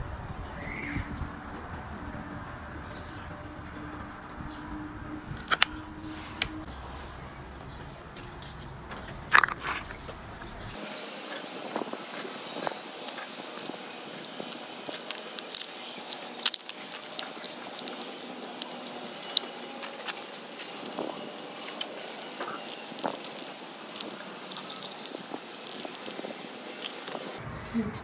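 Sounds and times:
plastic parts clicking and crinkling: 8.9 - 27.4.

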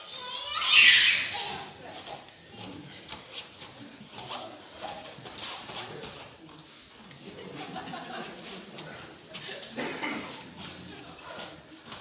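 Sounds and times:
bare feet scraping on mats: 1.2 - 9.7.

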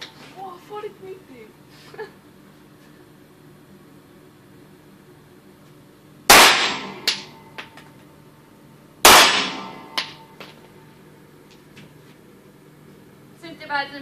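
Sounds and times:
pistol shots echoing: 6.3 - 7.4, 9.1 - 10.3.

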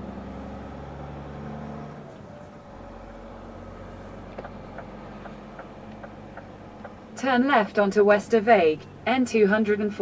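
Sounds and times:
truck diesel engine running: 0.0 - 10.0
turn signal ticking: 3.9 - 9.4.

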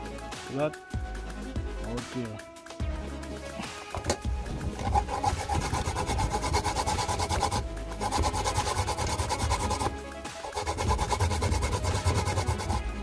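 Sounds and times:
coconut scraping on a tin grater: 4.7 - 13.0.

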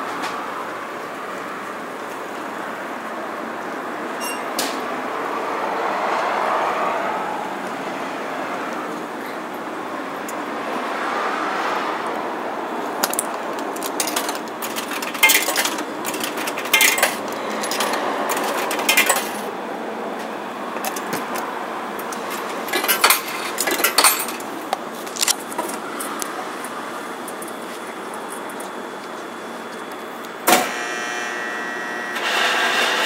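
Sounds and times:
vending machine hum: 0.0 - 33.0
coins clinking into coin slot: 13.0 - 19.5, 22.1 - 24.5.

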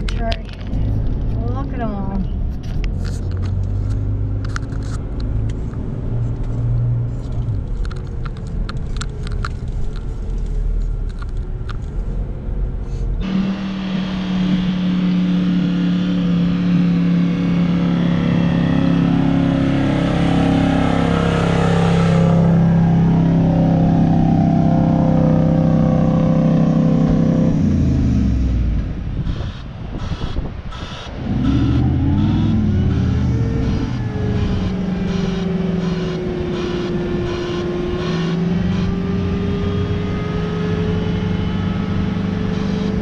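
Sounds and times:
light rattles and clicks: 0.0 - 12.2
car engine and tyre rumble: 0.0 - 43.0.

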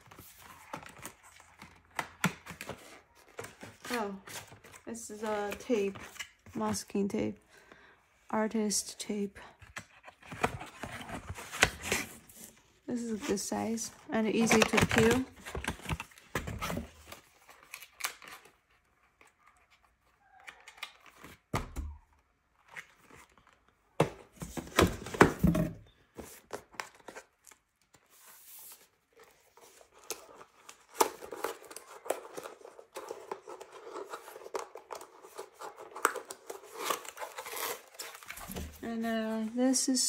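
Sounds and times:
packaging being torn: 17.4 - 18.6, 35.4 - 38.5.

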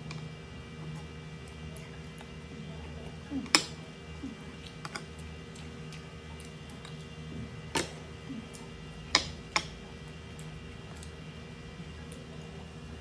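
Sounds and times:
chopsticks clicking on ceramic bowls: 9.1 - 9.8.

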